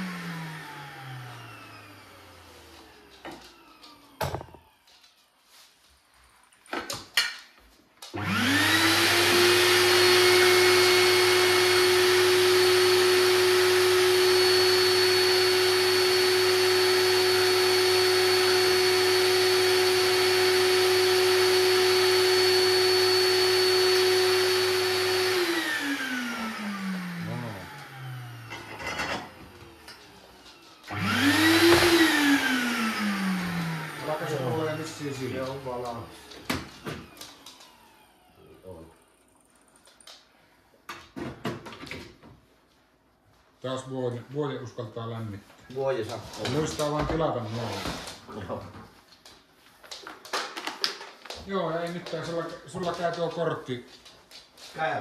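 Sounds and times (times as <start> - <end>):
vacuum cleaner winding down: 0.0 - 5.1, 8.0 - 39.4, 46.3 - 48.6
vacuum cleaner whining: 0.0 - 7.1, 8.0 - 42.4, 45.1 - 55.0.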